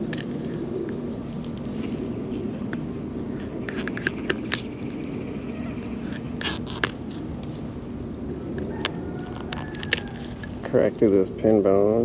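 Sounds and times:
low hum: 0.0 - 12.0
knife scraping fish bone: 6.0 - 7.0.

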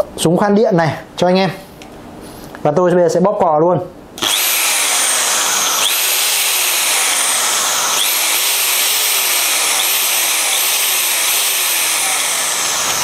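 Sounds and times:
impact drill motor whining: 4.2 - 13.0.

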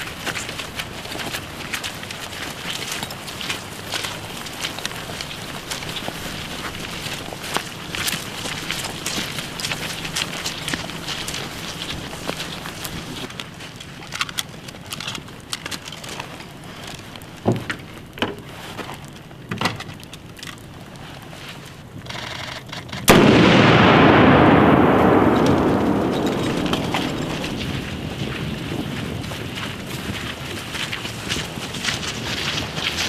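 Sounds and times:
rifle fire cracks: 23.1 - 28.3
loud explosive blast: 23.1 - 28.8.

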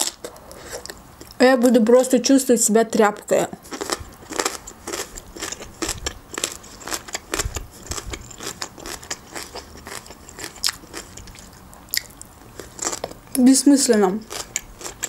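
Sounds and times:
close chewing of chicken: 3.6 - 13.2, 14.2 - 15.0.

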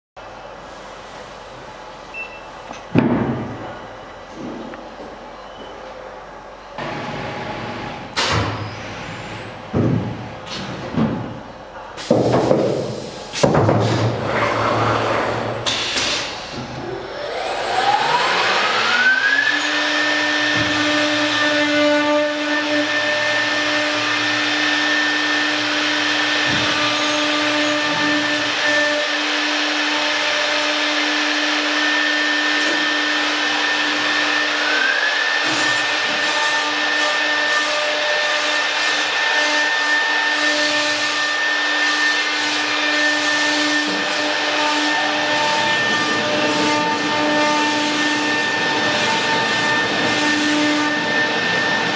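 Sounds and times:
rushing machining noise: 14.1 - 51.9
router spindle whine: 16.8 - 51.9.

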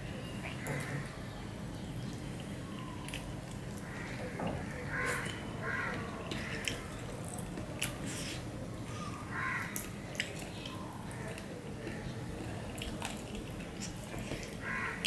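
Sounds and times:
crow cawing: 3.8 - 6.6, 9.0 - 9.8, 14.6 - 15.0
man chewing food: 5.0 - 8.8, 9.7 - 15.0.

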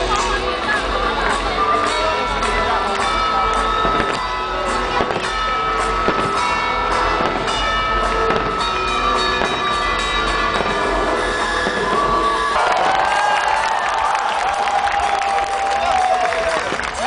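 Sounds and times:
soundtrack music: 0.0 - 12.8
fireworks bursting: 1.2 - 13.0.

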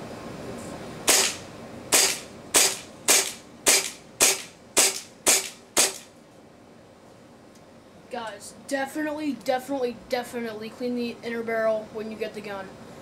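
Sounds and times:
airsoft pistol shots: 1.1 - 6.1
slide blowback clack: 1.1 - 6.1.

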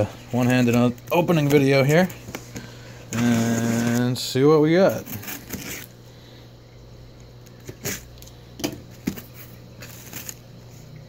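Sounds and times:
cardboard scraping and cracking: 3.1 - 4.2, 4.8 - 5.9, 7.6 - 8.1, 8.9 - 10.4
packing tape pulled from cardboard: 3.1 - 4.2, 4.9 - 6.0, 7.6 - 8.3, 9.0 - 10.4.

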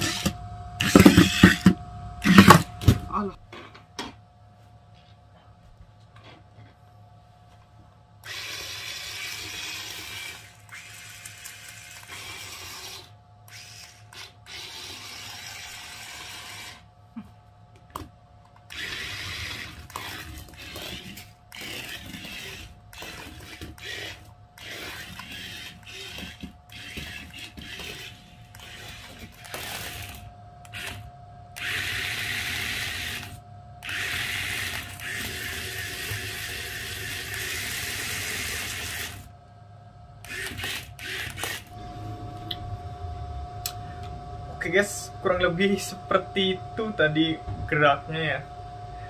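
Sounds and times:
small electric motors whirring: 0.0 - 3.0, 8.2 - 16.9, 18.6 - 39.3, 40.2 - 41.8.

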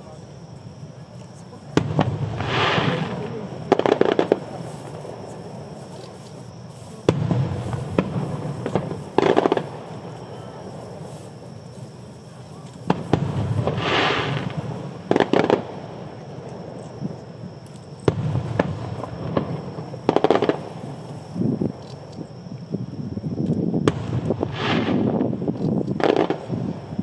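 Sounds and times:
firework crackling: 1.6 - 22.3, 23.6 - 27.0
firework boom with rumble: 1.8 - 4.6, 7.1 - 10.1, 12.8 - 15.8, 18.0 - 21.8, 23.8 - 27.0.

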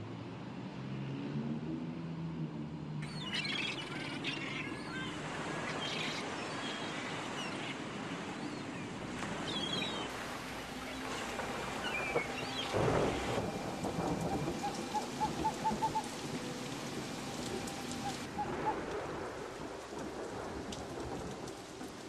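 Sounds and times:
bird chirps: 3.0 - 5.1
steady rushing hiss: 10.1 - 22.0.

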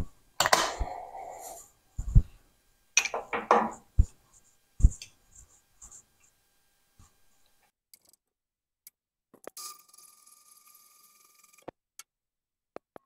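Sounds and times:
knocks on metal vise: 3.1 - 3.8.

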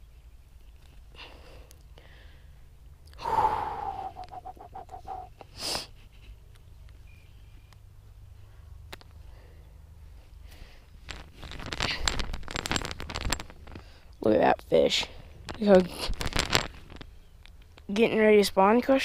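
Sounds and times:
person wheezy breathing: 3.2 - 6.0.

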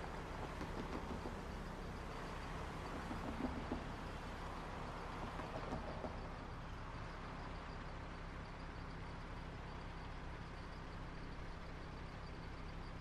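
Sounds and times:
distant traffic rumble: 0.0 - 8.5.

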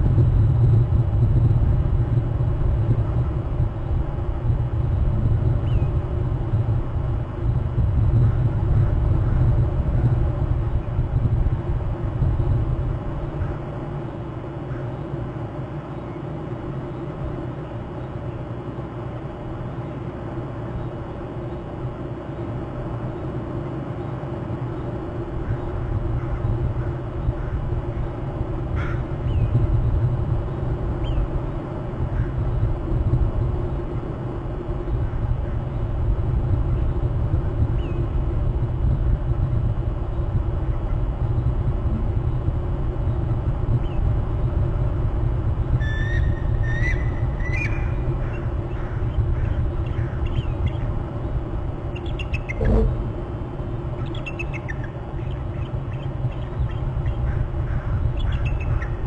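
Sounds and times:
low wind rumble: 0.0 - 59.0
birds calling: 23.0 - 29.7, 30.9 - 32.7, 45.8 - 59.0
short high calls: 52.5 - 53.0.

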